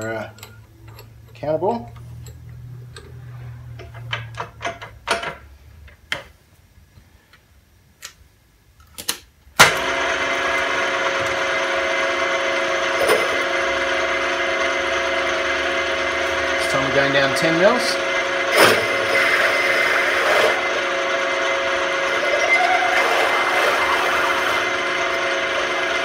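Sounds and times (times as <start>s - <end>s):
milling machine spindle motor running: 9.8s - 26.0s.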